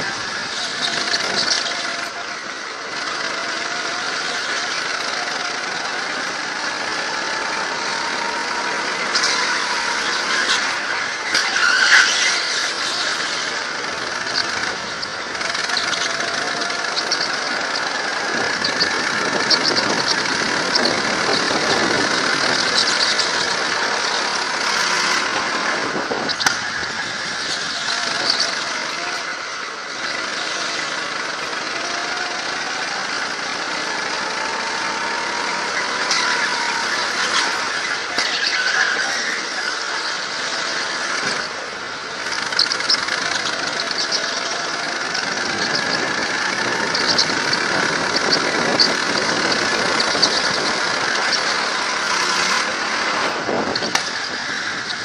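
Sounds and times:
go-kart engines running: 0.0 - 55.0
tyre squeals: 0.0 - 55.0
wind rush on microphone: 14.0 - 29.0, 42.2 - 55.0.

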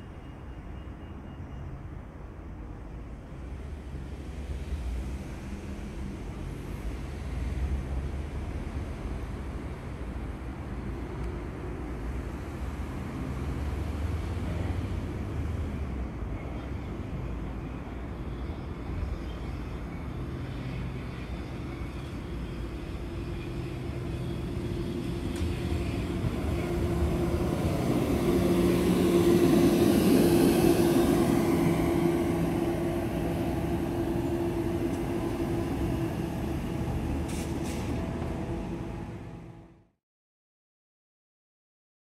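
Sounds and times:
train wheels rumbling on rails: 18.1 - 39.8
train motor whine: 22.6 - 39.7.

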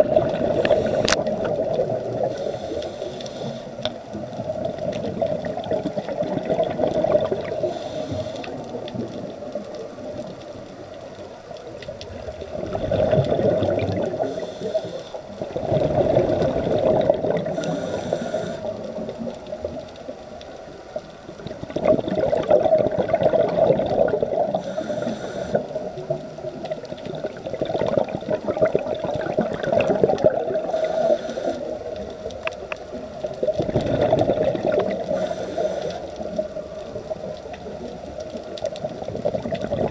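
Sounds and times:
diver exhaling bubbles: 0.0 - 2.4, 5.1 - 8.6, 12.4 - 14.6, 15.4 - 19.2, 21.4 - 26.0, 27.0 - 31.8, 33.4 - 36.0, 39.0 - 39.9
regulator hissing: 0.6 - 1.2, 2.3 - 3.8, 7.6 - 8.6, 14.2 - 15.3, 17.5 - 18.8, 24.6 - 25.8, 30.7 - 31.8, 35.1 - 36.4.

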